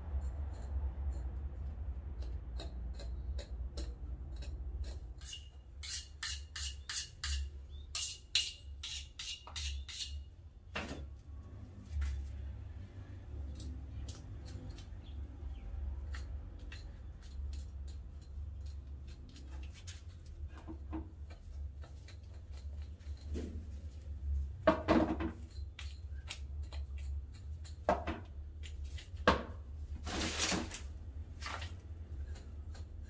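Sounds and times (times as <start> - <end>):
scraping rustles: 29.9 - 31.8.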